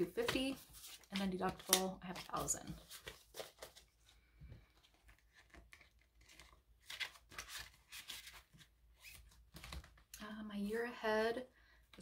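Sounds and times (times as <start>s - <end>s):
pages flipping: 0.1s - 10.1s
plastic binder pockets crinkling: 4.8s - 10.1s.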